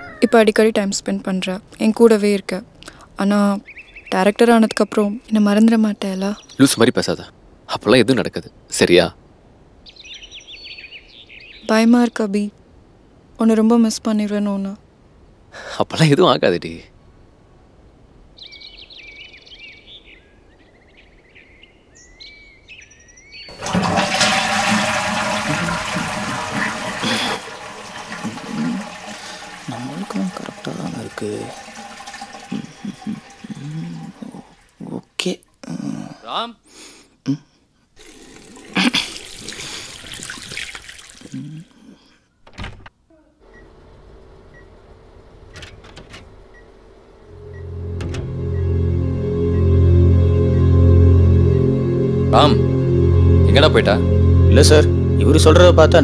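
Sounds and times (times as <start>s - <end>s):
birds chirping: 0.0s - 8.7s, 9.8s - 12.5s, 18.2s - 23.6s, 25.6s - 35.1s
toilet flushing: 23.5s - 34.8s, 38.0s - 41.4s
low hum: 46.3s - 56.0s.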